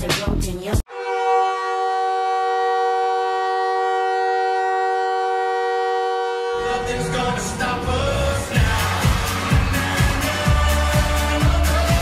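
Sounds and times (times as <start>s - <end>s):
hockey goal horn blasting: 0.9s - 7.0s
pop goal song: 7.0s - 12.0s.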